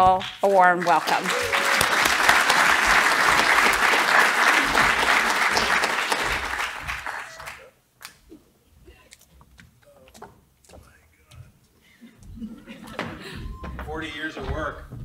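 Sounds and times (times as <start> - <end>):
audience applauding: 0.6 - 7.7.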